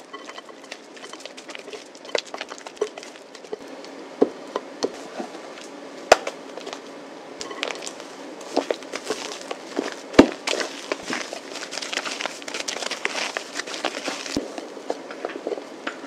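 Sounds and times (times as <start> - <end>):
spatula stirring thick mousse: 0.0 - 3.6, 7.6 - 14.7.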